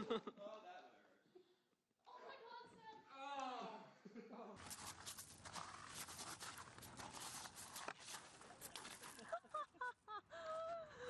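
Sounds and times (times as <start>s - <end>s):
seesaw rustling and scraping on gravel: 4.6s - 9.4s.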